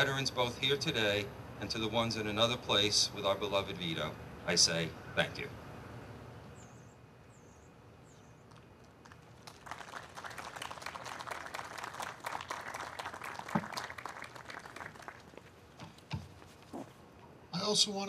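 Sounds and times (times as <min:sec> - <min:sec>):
crowd applauding: 0:09.0 - 0:15.6.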